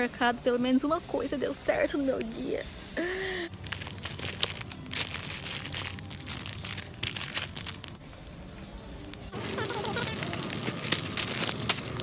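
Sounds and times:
plastic wrapping crinkling: 0:03.5 - 0:08.0, 0:09.0 - 0:12.0.

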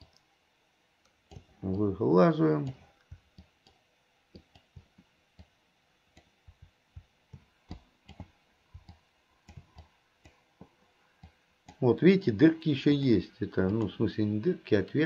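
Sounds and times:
faint computer clicking: 0:01.0 - 0:01.9, 0:02.6 - 0:11.9, 0:13.3 - 0:14.4.

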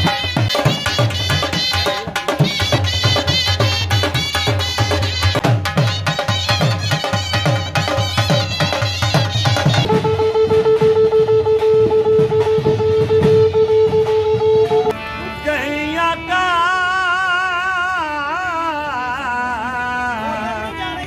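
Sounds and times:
drum beats: 0:00.0 - 0:15.0
harmonium playing: 0:00.0 - 0:21.0
horn blown in long note: 0:09.9 - 0:15.6
man singing: 0:15.2 - 0:21.0.

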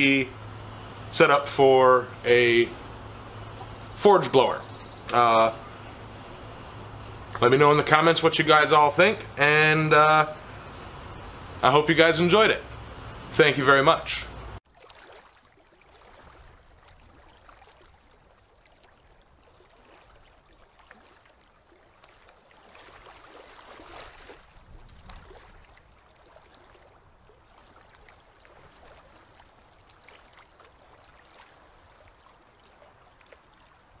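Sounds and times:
underwater water wash: 0:00.0 - 0:34.0
small underwater clicks: 0:20.4 - 0:22.5, 0:27.8 - 0:31.5, 0:32.2 - 0:33.9.

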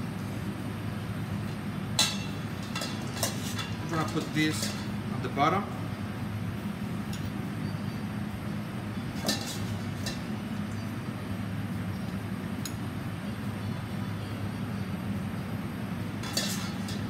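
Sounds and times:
steady low hum: 0:00.0 - 0:17.0
metal spoons clinking on bowl: 0:02.0 - 0:05.0.

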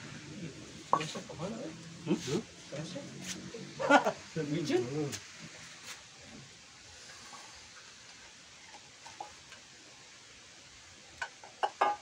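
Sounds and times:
background hiss: 0:00.0 - 0:12.0
pot lid and leaves handled: 0:00.9 - 0:01.4.

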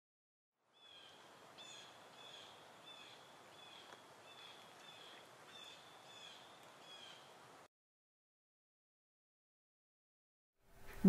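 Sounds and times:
faint bird chirps: 0:00.7 - 0:07.4.

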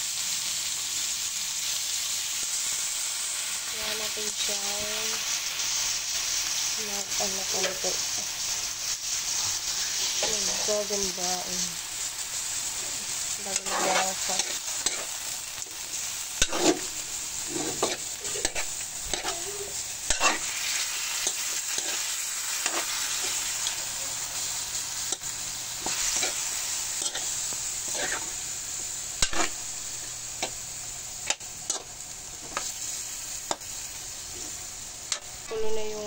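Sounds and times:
chicken sizzling in hot oil: 0:00.0 - 0:36.0
metal spoon scraping pan: 0:13.4 - 0:15.2, 0:16.4 - 0:20.5, 0:27.0 - 0:28.3, 0:29.2 - 0:29.6.

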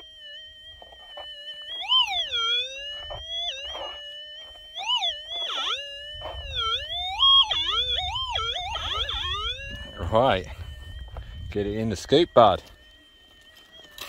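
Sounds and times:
metal detector tone: 0:00.0 - 0:14.0.

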